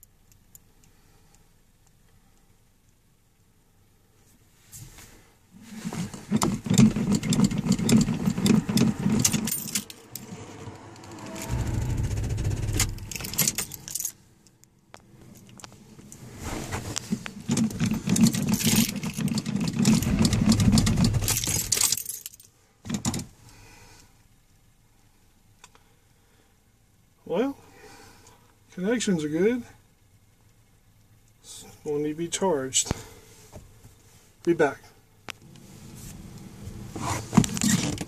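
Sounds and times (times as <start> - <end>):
starter cranking engine: 6.2 - 14.0, 17.6 - 21.8
sharp rattling clicks: 6.3 - 10.3, 17.5 - 22.4.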